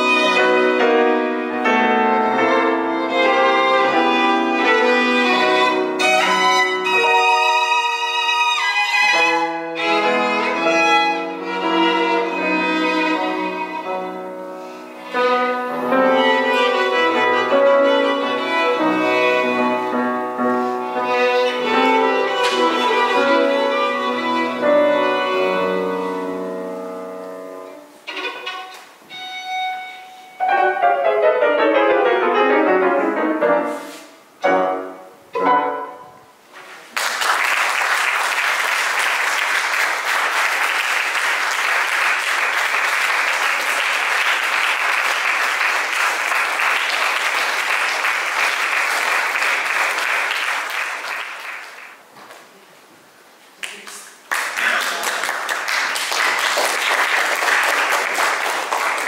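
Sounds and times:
violin: 0.0 - 33.7, 34.4 - 36.2
grand piano: 0.0 - 53.2
audience applause: 36.9 - 52.0, 53.6 - 59.0.

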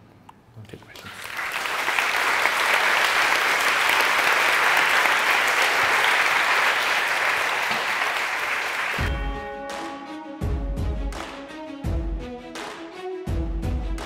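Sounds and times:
crowd applauding: 1.0 - 9.3.

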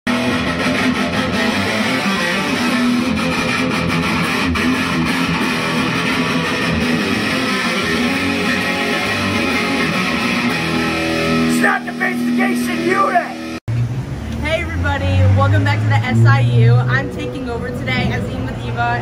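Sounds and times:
intro music with electric guitar: 0.1 - 13.6.

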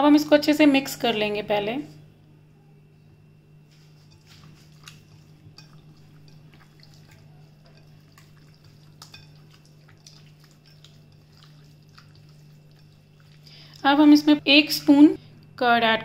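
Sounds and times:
wet squishes of meat mixing: 3.7 - 14.4.

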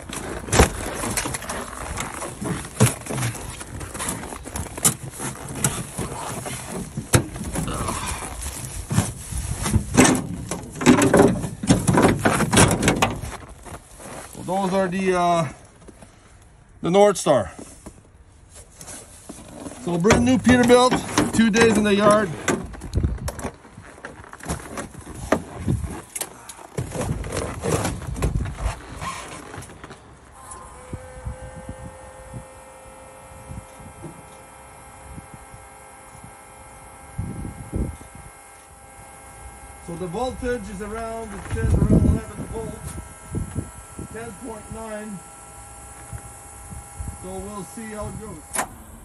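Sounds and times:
footsteps on snow: 0.0 - 10.0, 13.2 - 16.3
truck door opening: 0.0 - 13.8, 48.4 - 49.0.

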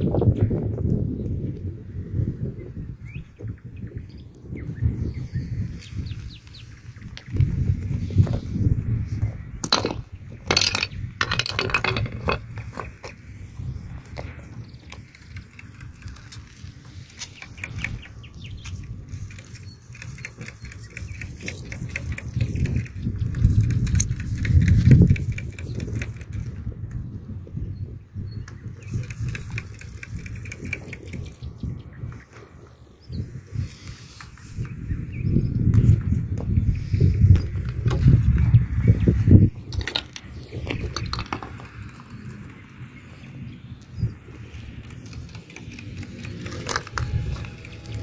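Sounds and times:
stones clicking together: 9.6 - 13.2, 39.7 - 42.4, 44.7 - 48.0
spray bottle squirting: 14.9 - 26.3, 28.8 - 31.4, 44.5 - 48.0.

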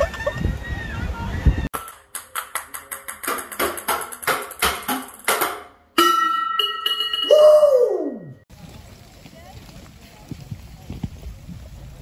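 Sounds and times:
ping-pong balls bouncing on stairs: 1.8 - 5.6
ringing tone: 6.0 - 7.4.

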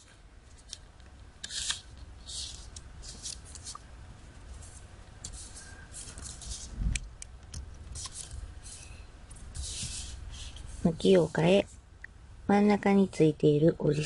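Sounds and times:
paper rustling as it is folded: 1.4 - 3.8, 4.4 - 6.8, 7.9 - 11.6.

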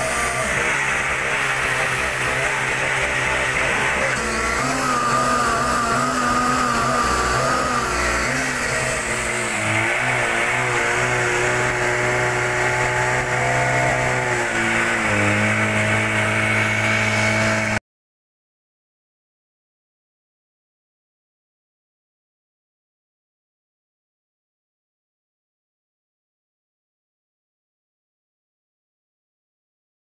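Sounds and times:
small pump engine running: 0.0 - 17.8.

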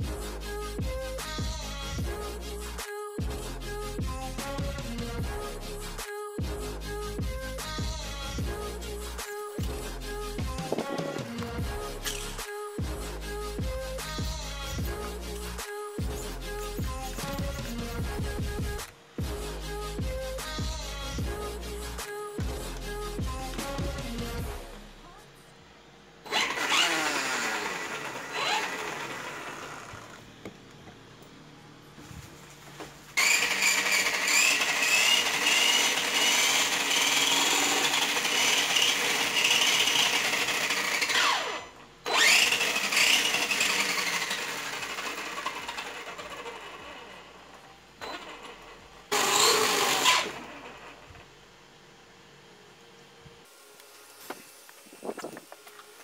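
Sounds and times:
electric motor whining: 9.6 - 19.0, 26.2 - 31.2, 33.2 - 51.4.

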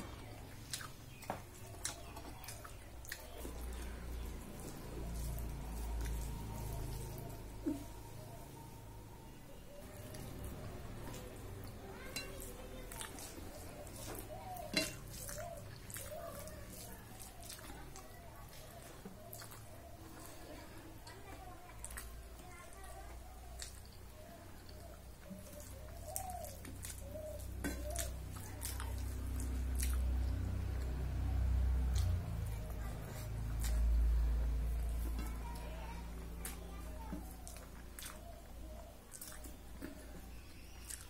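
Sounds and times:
fingers mixing food on metal plate: 0.0 - 41.0
soft wet eating clicks: 0.2 - 8.1, 9.8 - 20.3, 20.9 - 41.0
bird cooing: 3.8 - 12.4, 13.5 - 21.4, 24.2 - 29.3, 36.6 - 40.7.

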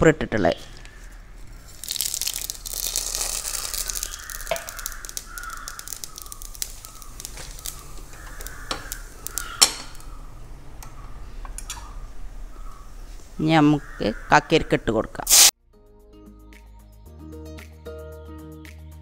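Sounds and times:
seeds crackling and popping: 0.5 - 10.2, 15.2 - 15.5
mustard seeds sizzling in hot oil: 1.6 - 10.1, 15.3 - 15.5
birds squawking: 2.9 - 14.8.

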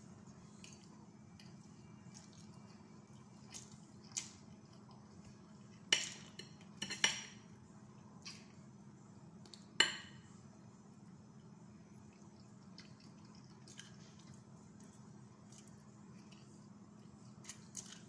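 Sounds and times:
forks clinking against a plate: 6.0 - 7.4.

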